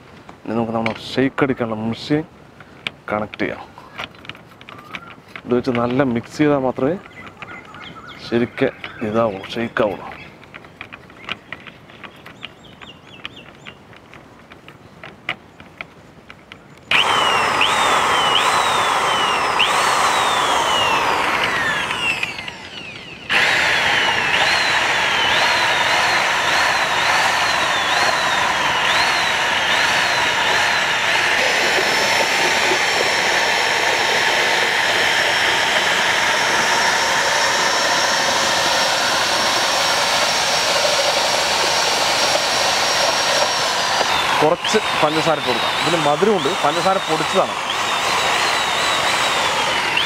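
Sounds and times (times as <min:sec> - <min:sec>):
electric drill motor whine: 0:16.9 - 0:50.0.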